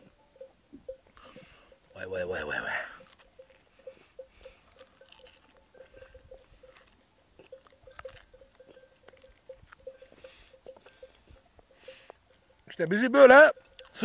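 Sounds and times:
chewing and mouth smacks: 0:03.0 - 0:12.7, 0:13.7 - 0:14.0.

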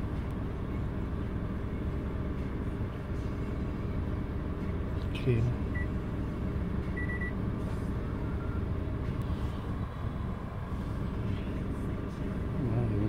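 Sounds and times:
car engine idling: 0:00.0 - 0:13.0
short high beep: 0:07.0 - 0:07.4.

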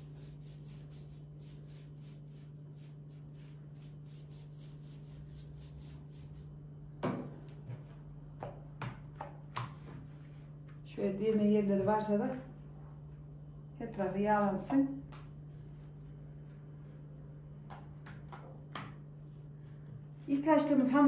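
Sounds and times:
pastry brush swishing on dough: 0:00.0 - 0:06.6
steady low hum: 0:00.0 - 0:21.0.

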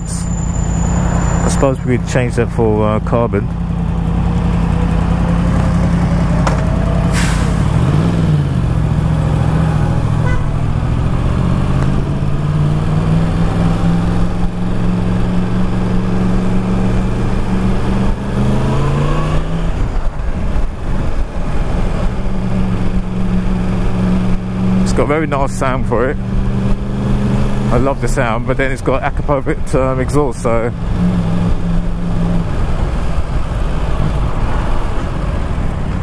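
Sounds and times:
motorcycle engine revving: 0:03.5 - 0:28.8.

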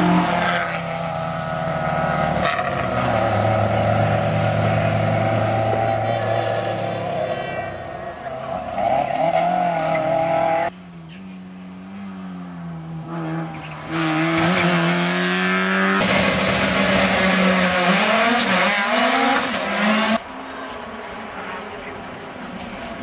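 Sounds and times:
race car engine steady: 0:00.0 - 0:23.0
rally car engine revving with whine: 0:08.6 - 0:20.2.

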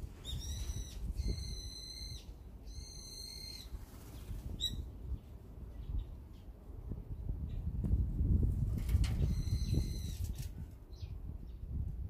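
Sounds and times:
birds whistling calls: 0:00.2 - 0:04.9, 0:09.2 - 0:10.2.

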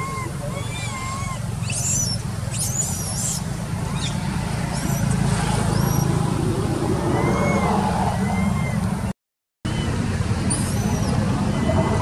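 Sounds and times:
monkey squealing: 0:00.0 - 0:05.1, 0:05.7 - 0:06.2, 0:07.1 - 0:08.8, 0:09.7 - 0:12.0.

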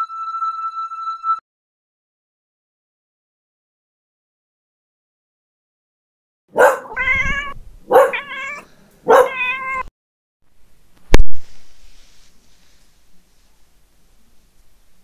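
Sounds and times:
cat meowing: 0:06.6 - 0:09.9.

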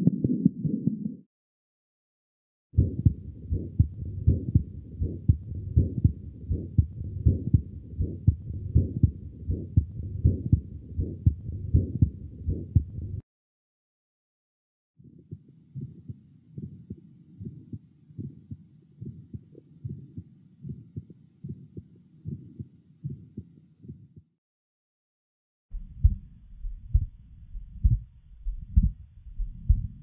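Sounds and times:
heartbeat with murmur: 0:02.8 - 0:13.2, 0:15.1 - 0:24.3, 0:25.8 - 0:30.0.

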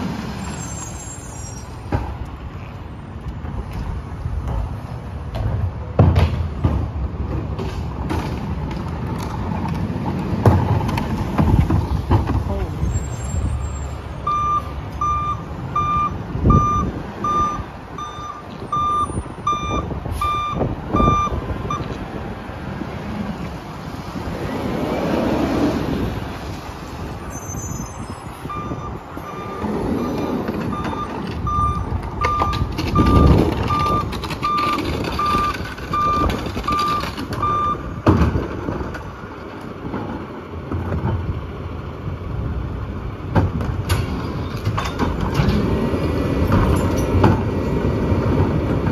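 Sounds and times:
truck backup alarm beeping: 0:13.0 - 0:22.0, 0:27.4 - 0:37.9.

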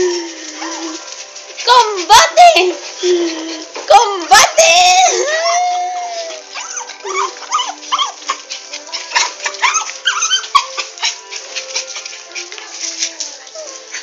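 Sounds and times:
small dog whimpering and yipping: 0:05.0 - 0:12.5.

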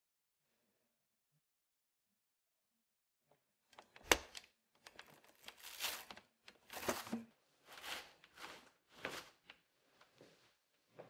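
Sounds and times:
plastic scraping and rustling: 0:04.8 - 0:09.4.

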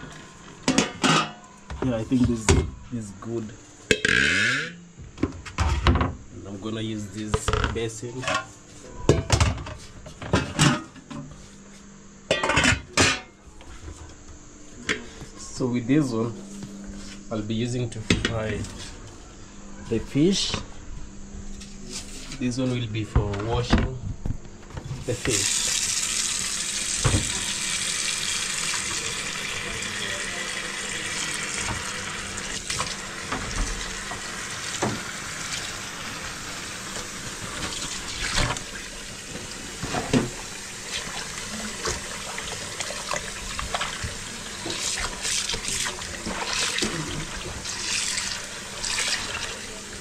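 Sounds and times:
tap water running into basin: 0:25.2 - 0:50.0.

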